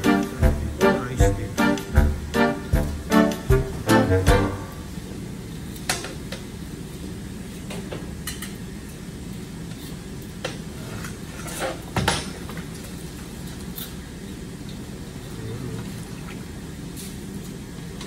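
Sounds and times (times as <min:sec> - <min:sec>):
steady low hum: 0:00.0 - 0:05.7.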